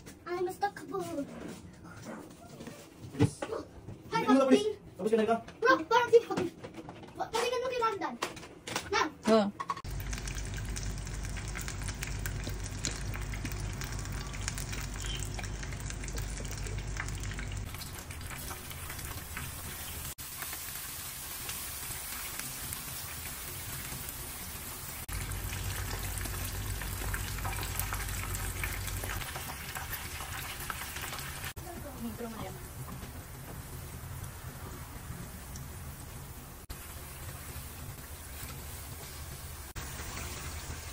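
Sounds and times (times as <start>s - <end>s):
garlic sizzling in hot oil: 9.8s - 40.9s.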